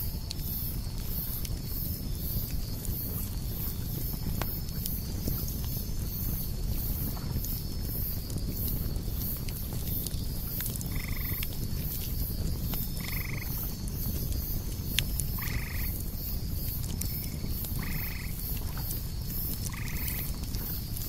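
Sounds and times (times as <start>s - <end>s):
campfire crackling: 0.0s - 21.0s
cicadas buzzing: 10.8s - 21.0s.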